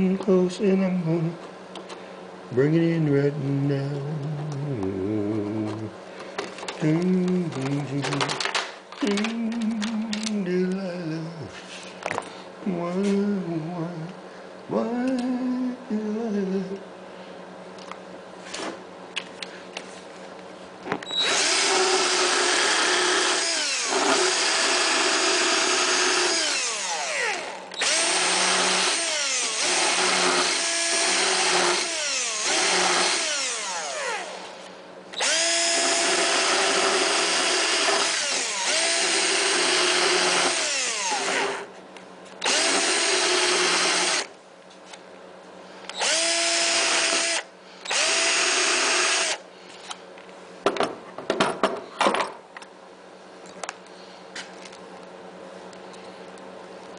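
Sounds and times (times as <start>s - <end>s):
cordless drill whining: 21.0s - 34.6s, 35.2s - 41.7s, 42.4s - 44.3s, 45.9s - 49.4s.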